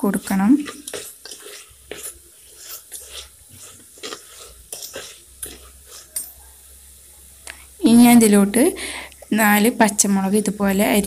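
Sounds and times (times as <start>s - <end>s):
metal spoon scraping a pot: 0.0s - 6.3s.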